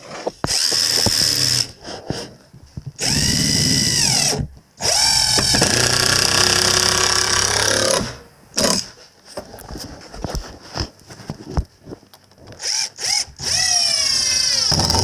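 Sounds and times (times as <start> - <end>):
impact driver driving screws: 0.4 - 1.8, 3.0 - 8.9, 12.6 - 15.0.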